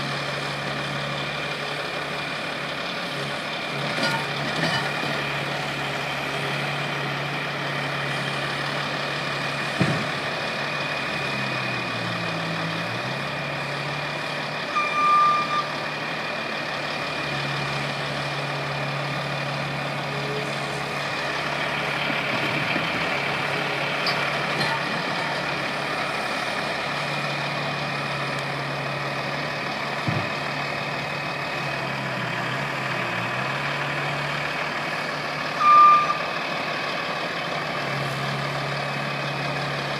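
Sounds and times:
loader engine running under load: 0.0 - 39.9
short high beep: 14.8 - 15.7, 35.6 - 36.2.

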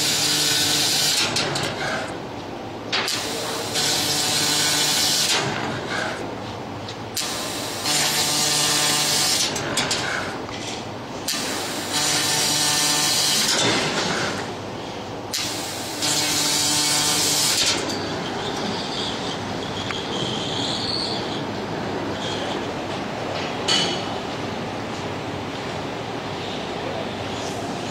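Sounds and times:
steady machine hum: 0.0 - 27.9
laser cutter hissing bursts: 3.1 - 6.3, 7.2 - 10.4, 11.2 - 17.8.

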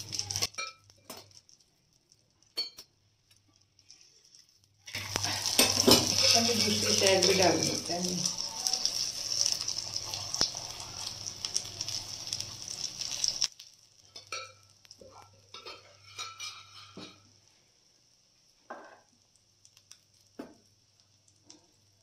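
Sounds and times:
ghee sizzling on hot pan: 0.0 - 22.0
spatula spreading: 3.6 - 7.6.

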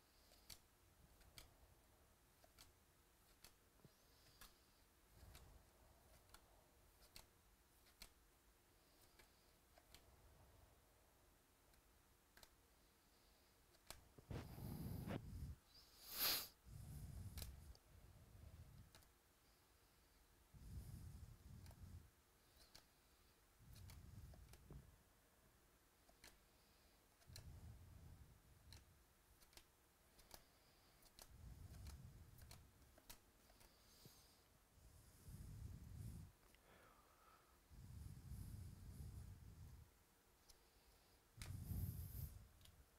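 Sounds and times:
cards flipping ticks: 0.1 - 1.6, 2.3 - 8.2, 11.7 - 15.2, 17.2 - 17.8, 21.5 - 24.9, 26.0 - 34.5.

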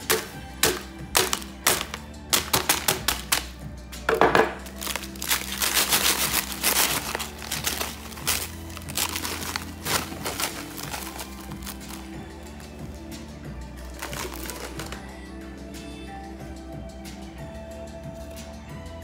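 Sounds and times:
hammer knocking on sugar: 0.0 - 3.4
paper crinkling and rustling: 4.4 - 12.6, 13.9 - 15.1.

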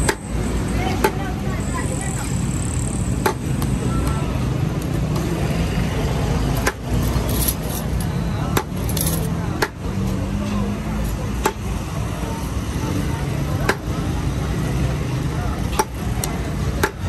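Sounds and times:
busy street noise: 0.0 - 17.0.

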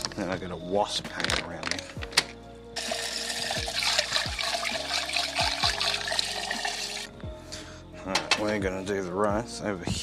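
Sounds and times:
hose water filling metal pot: 2.8 - 7.1.

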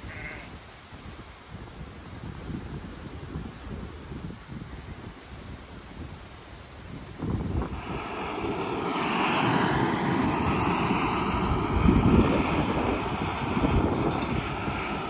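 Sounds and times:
gas stove burner roaring: 7.5 - 15.0.

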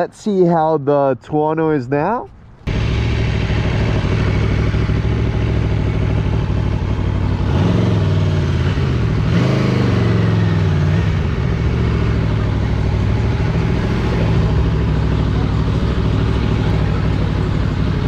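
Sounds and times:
motorcycle engine running: 2.6 - 18.0.

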